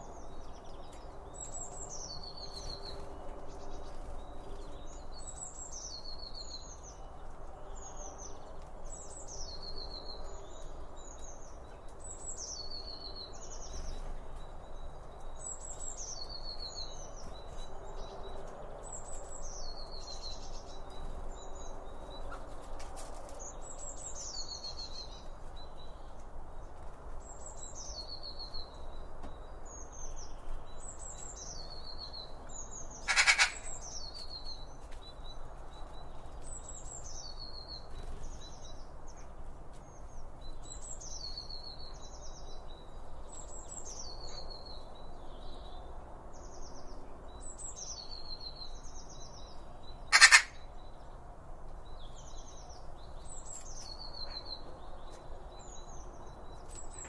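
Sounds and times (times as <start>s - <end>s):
bird singing trill: 0.0s - 22.4s, 27.2s - 51.2s, 51.8s - 57.0s
bird call: 33.0s - 33.8s, 50.1s - 50.7s.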